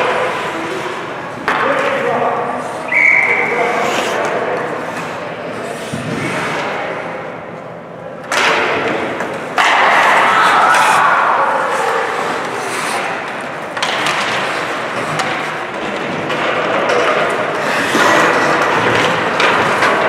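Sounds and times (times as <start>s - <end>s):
ice skates scraping ice: 0.0s - 1.8s, 3.4s - 7.0s, 10.0s - 16.1s, 16.9s - 19.9s.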